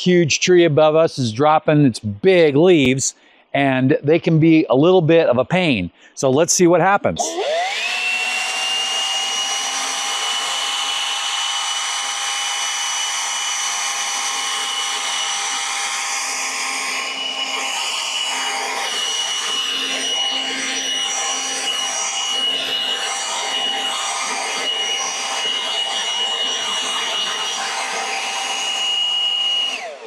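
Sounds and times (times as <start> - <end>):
leaf blower running: 7.2 - 30.0.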